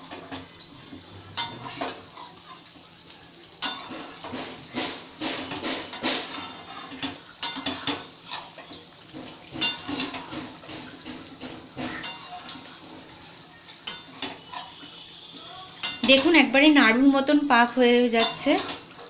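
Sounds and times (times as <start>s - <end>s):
metal spoon scraping a pan: 1.3s - 2.7s, 3.6s - 13.1s, 13.7s - 15.0s, 15.8s - 16.5s, 18.1s - 19.0s
ringing knocks on a pan: 9.5s - 10.5s.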